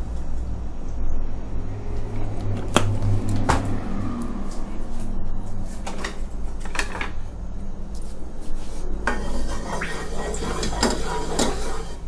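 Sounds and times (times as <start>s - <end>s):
wooden spatula scraping a wok: 8.5s - 12.0s.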